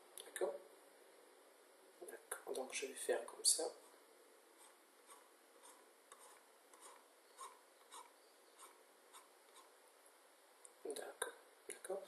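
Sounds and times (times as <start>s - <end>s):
marker pen scratching on paper: 4.6s - 9.8s.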